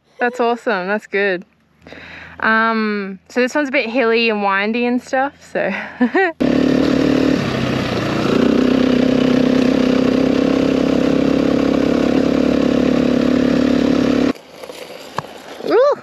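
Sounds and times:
dirt bike engine running: 6.1 - 14.4.

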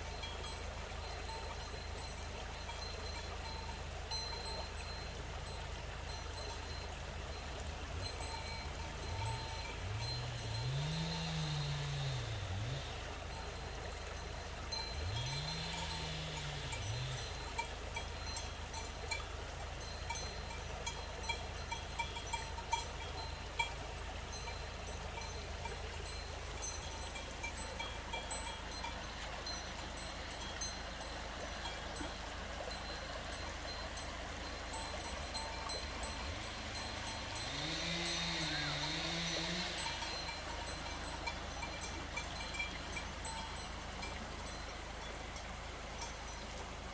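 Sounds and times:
cowbells clanking: 0.0 - 46.9
river running over gravel: 0.0 - 46.9
cow mooing: 9.2 - 13.1, 15.0 - 17.4, 36.1 - 41.3.

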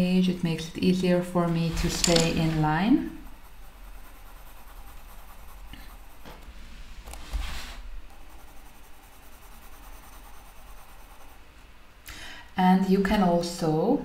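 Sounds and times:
pencil scratching on paper: 1.5 - 6.3, 7.1 - 11.4.

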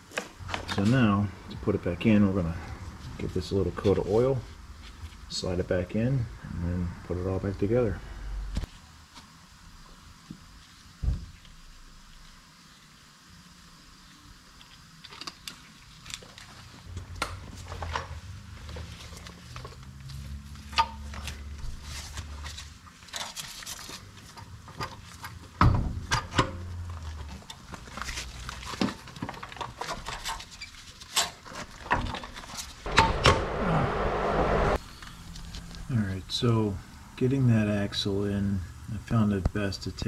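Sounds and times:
loud rough scraping: 32.9 - 34.8
low hum: 32.9 - 37.0.

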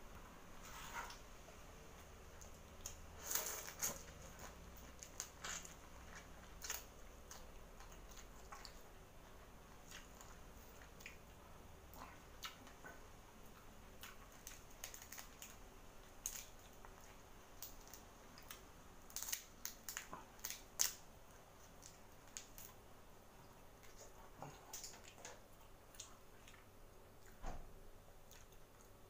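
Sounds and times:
shrimp shell cracking while peeled: 17.6 - 21.0.

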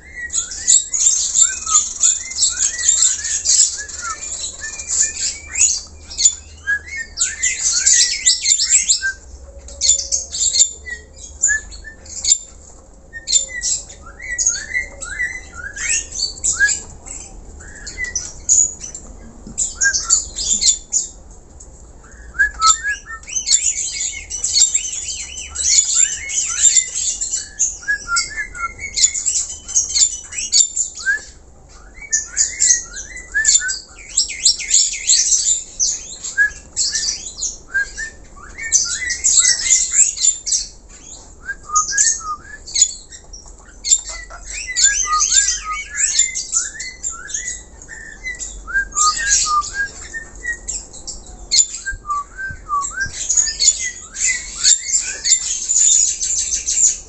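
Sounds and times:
starling singing: 0.0 - 21.2, 22.0 - 57.0.

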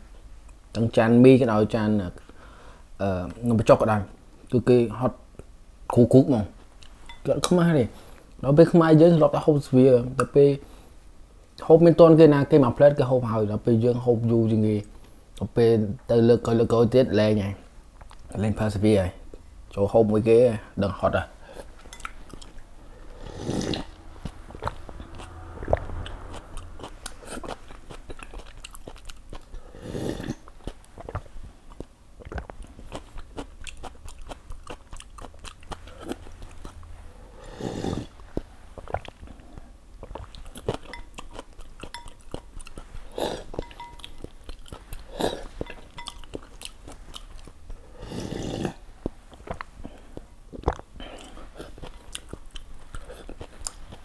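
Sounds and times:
person chewing noodles: 21.4 - 54.0.

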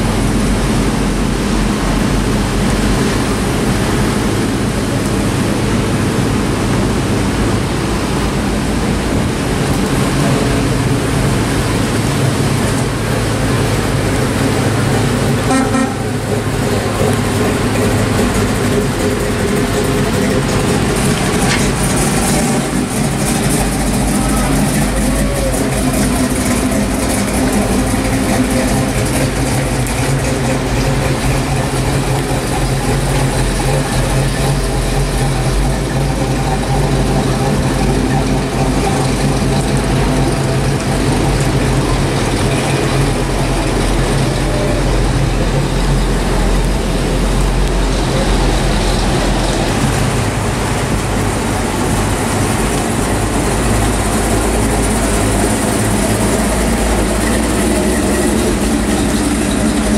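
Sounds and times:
car engines rumbling past: 0.0 - 59.9.

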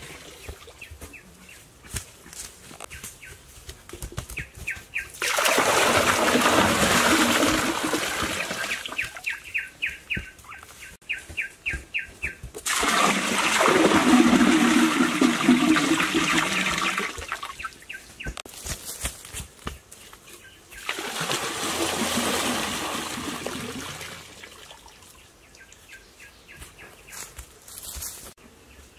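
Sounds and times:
water gushing into a pool: 5.2 - 9.0, 12.6 - 17.5, 20.8 - 25.0.

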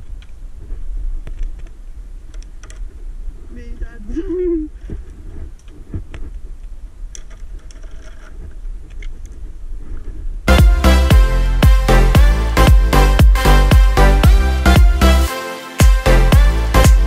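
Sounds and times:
wind rumble on microphone: 0.0 - 10.5.

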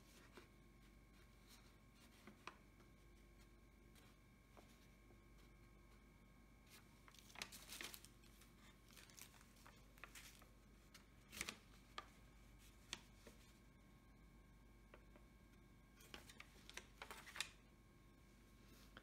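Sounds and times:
plastic bags crinkling: 7.0 - 10.6.

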